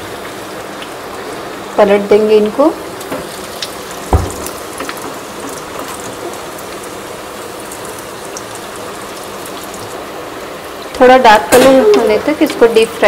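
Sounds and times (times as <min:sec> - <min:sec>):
oil sizzling and crackling: 0:00.0 - 0:13.0
loud knock: 0:04.1 - 0:04.5.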